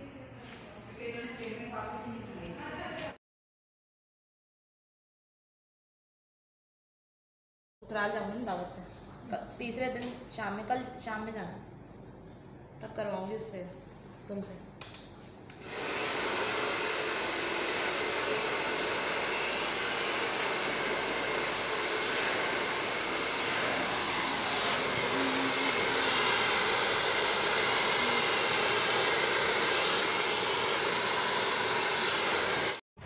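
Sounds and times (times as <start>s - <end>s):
hair dryer running: 15.5s - 32.8s.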